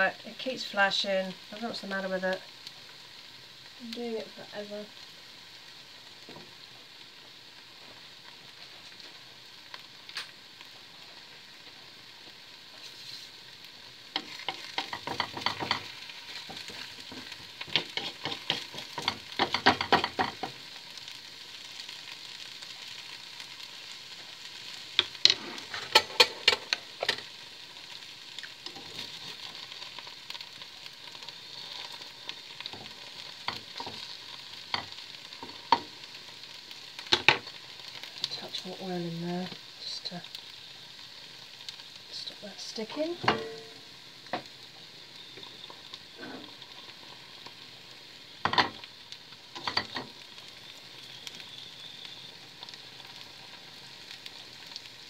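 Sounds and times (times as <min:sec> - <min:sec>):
eggs sizzling in a pan: 0:00.0 - 0:55.0
wooden spatula scraping a pan: 0:12.7 - 0:13.5, 0:14.1 - 0:20.6, 0:25.0 - 0:27.3, 0:28.7 - 0:30.4.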